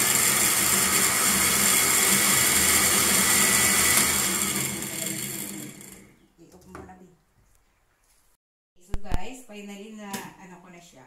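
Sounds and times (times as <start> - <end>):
blender motor chopping celery: 0.0 - 6.2.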